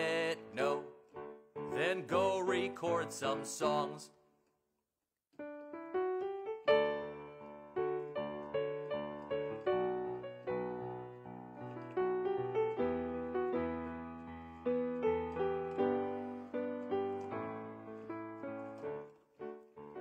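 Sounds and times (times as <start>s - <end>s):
piano chords: 0.0s - 4.0s, 5.4s - 20.0s.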